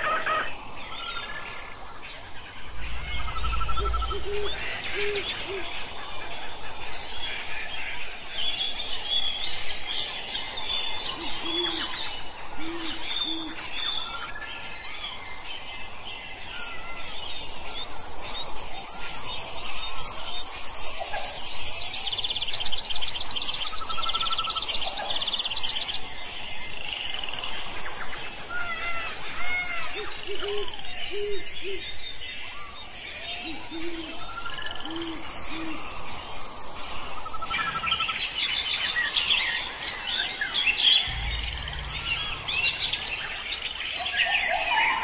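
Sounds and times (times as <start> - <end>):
fast-pulsing insect trill: 2.2 - 6.2, 33.5 - 45.0
brief low rumble: 2.6 - 5.7, 41.0 - 44.2
low hooting bird notes: 2.6 - 6.0, 40.9 - 45.0
birds whistling and chirping: 2.7 - 5.8, 28.6 - 45.0.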